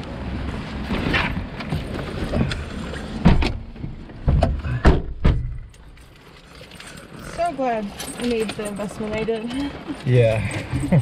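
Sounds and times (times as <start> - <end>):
car door knocks and thumps: 3.2 - 5.7.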